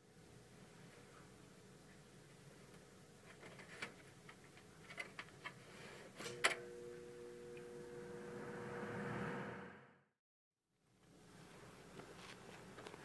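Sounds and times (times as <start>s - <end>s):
box fan humming and blowing: 3.3s - 9.2s.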